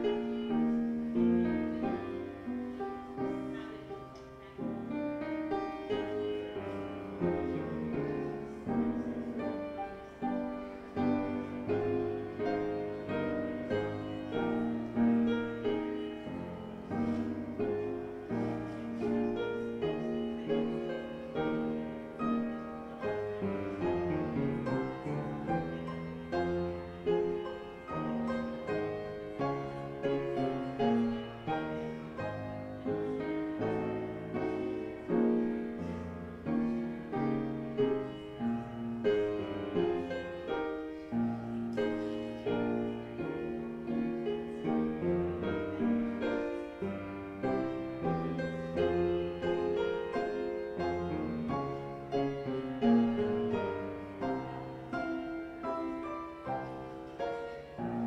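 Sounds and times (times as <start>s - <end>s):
solo piano music: 0.0s - 58.0s.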